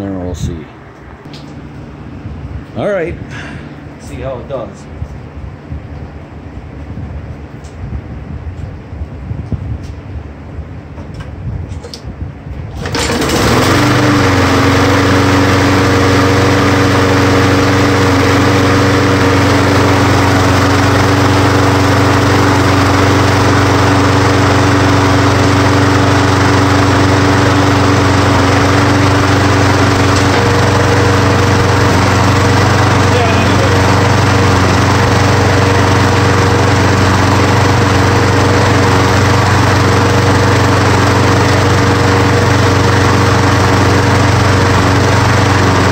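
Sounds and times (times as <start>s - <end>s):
lawn mower engine running: 12.7s - 45.9s.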